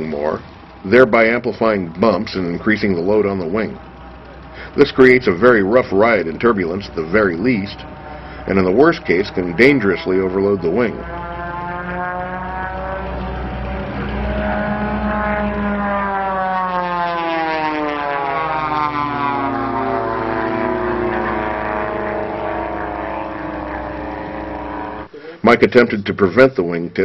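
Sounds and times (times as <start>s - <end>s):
propeller airplane engine flying past: 0.0s - 25.1s.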